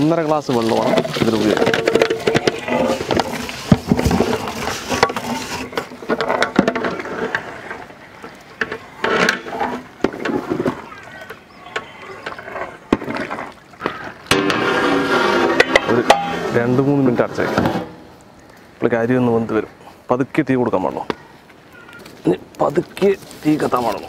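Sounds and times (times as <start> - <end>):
liquid sloshing: 0.0 - 18.6.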